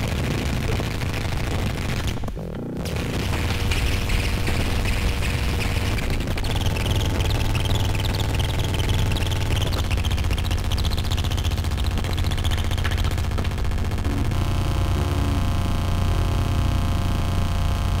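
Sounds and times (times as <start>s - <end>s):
synthesizer crackle: 0.0s - 18.0s
low buzzing synthesizer drone: 2.4s - 18.0s
chirping high blips: 3.6s - 13.2s.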